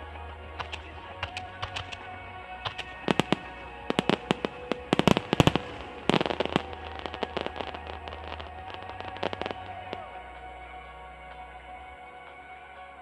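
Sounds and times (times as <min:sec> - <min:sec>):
music playing: 0:00.0 - 0:13.0
fireworks bangs and crackles: 0:02.7 - 0:10.0.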